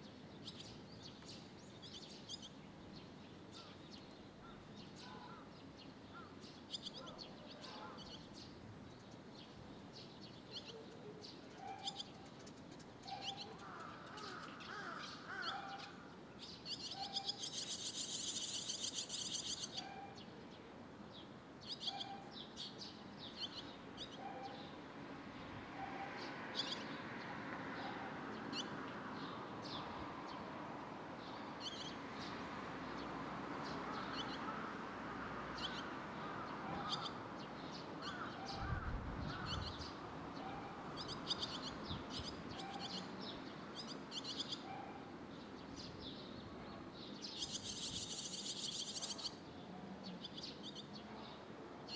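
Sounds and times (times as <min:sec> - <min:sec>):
swallow fledglings chirping: 0:00.4 - 0:20.3, 0:35.6 - 0:44.7, 0:47.0 - 0:49.4.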